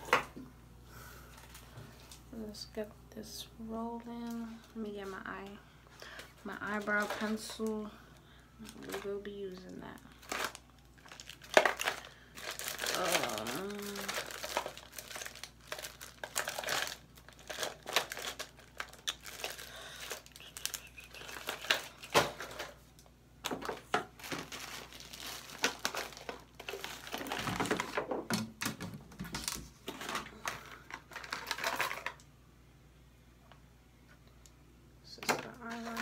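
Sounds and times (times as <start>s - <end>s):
crinkling rustles: 1.2s - 2.4s, 4.0s - 7.9s, 8.6s - 32.2s, 35.2s - 36.0s
small items clattering in plastic box: 6.7s - 7.7s, 8.6s - 22.8s, 23.4s - 32.2s, 35.2s - 36.0s.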